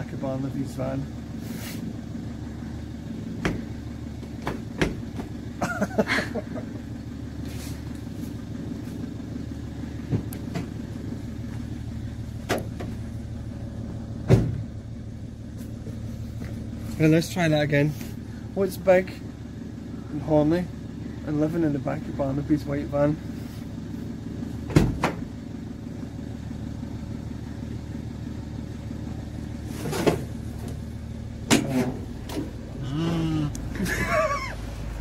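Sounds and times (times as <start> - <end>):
van engine idling: 0.0 - 35.0
loud thump: 14.2 - 14.7, 24.7 - 25.3.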